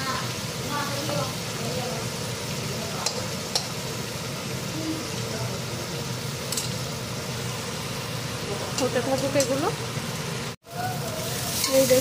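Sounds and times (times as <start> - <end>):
prawns sizzling in oil: 0.0 - 12.0
metal spatula clinking on pan: 3.0 - 3.7, 6.5 - 6.8, 11.6 - 12.0.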